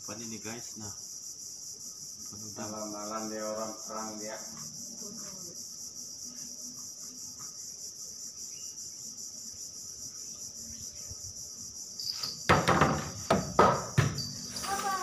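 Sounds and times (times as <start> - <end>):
insects chorus droning: 0.0 - 15.0
loud close knocks and rustles: 12.2 - 15.0.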